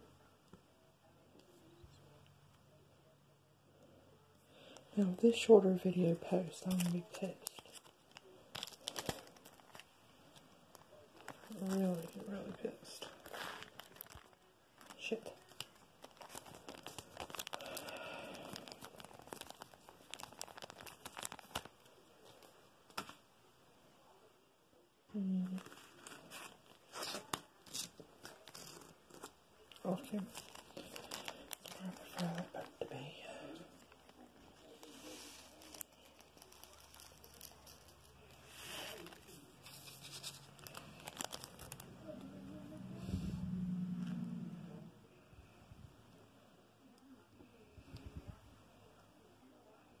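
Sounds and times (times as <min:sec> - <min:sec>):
plastic crinkling: 0:06.1 - 0:23.2, 0:25.4 - 0:42.2
small clicks and crackles: 0:06.6 - 0:23.2, 0:25.4 - 0:32.7, 0:33.8 - 0:42.3.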